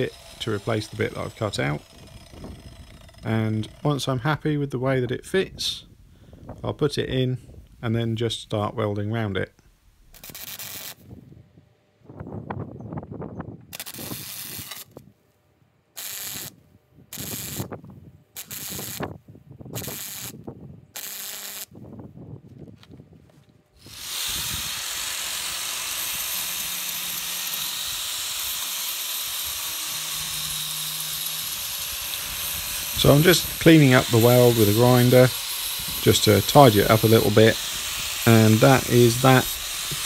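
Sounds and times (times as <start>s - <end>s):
angle grinder grinding: 0.0s - 4.2s, 17.1s - 17.7s, 18.4s - 19.1s, 21.0s - 21.7s, 23.8s - 40.0s
welder crackling hiss: 10.1s - 11.0s, 13.8s - 14.9s, 16.0s - 17.7s, 18.4s - 19.1s, 19.8s - 20.4s, 21.0s - 21.7s, 23.8s - 40.0s.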